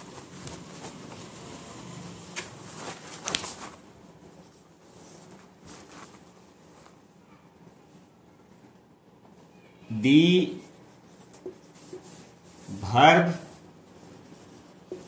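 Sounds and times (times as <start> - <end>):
marker strokes on whiteboard: 10.0 - 15.0
duster rubbing whiteboard: 10.7 - 15.0.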